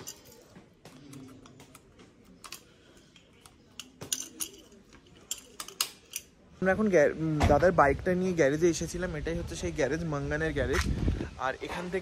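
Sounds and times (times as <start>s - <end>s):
light clicks and clinks: 0.0s - 6.4s.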